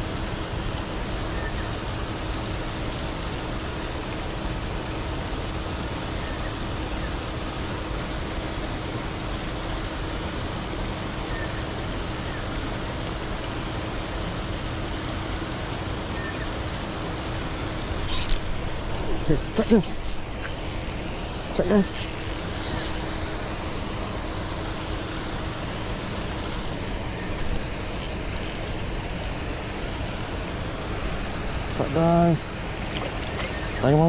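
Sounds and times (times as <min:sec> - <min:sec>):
steady rushing noise: 0:16.6 - 0:33.3.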